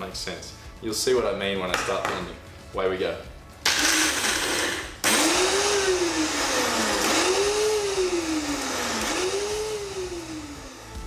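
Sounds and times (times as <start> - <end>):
blender motor whining: 3.7 - 11.0.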